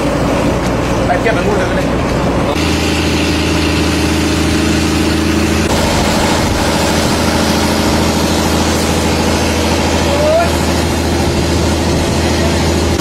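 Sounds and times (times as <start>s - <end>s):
ship engine humming: 0.0s - 13.0s.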